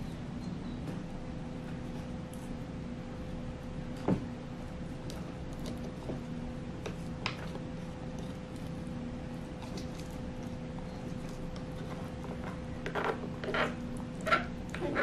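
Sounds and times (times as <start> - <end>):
background hum: 0.0 - 15.0
tortoise chewing vegetables: 4.7 - 15.0.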